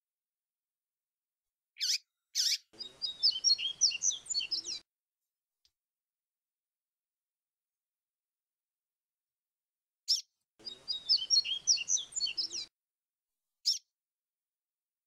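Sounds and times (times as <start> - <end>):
bird singing whistled notes: 1.8 - 4.8, 10.1 - 12.7.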